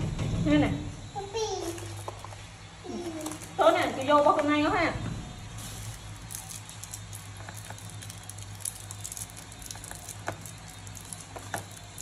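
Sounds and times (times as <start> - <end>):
plastic candy wrapper crinkling: 1.7 - 3.6, 5.6 - 12.0.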